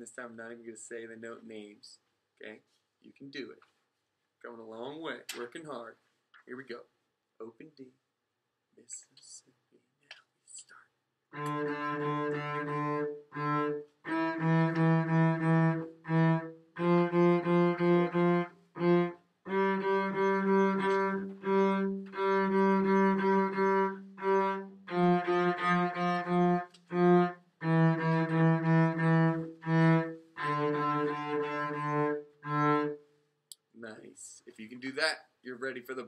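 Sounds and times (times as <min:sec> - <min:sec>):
solo cello bowed: 0:11.4 - 0:33.0.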